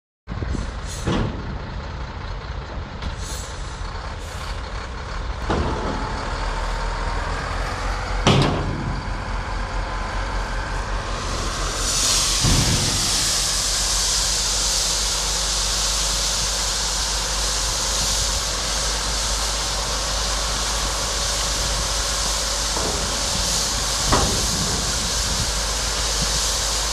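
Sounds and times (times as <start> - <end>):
diesel engine rumbling: 0.3 - 26.9
air hiss: 10.9 - 26.9.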